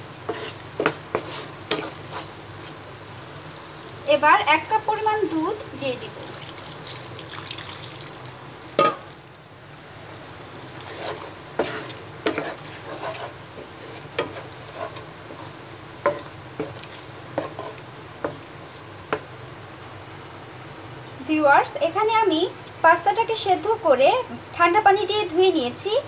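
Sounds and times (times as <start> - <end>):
spoon scraping and knocking pan: 0.2 - 2.4, 8.8 - 9.1, 10.8 - 18.4
sauce bubbling: 5.5 - 21.1
high-pitched whine: 13.4 - 19.7.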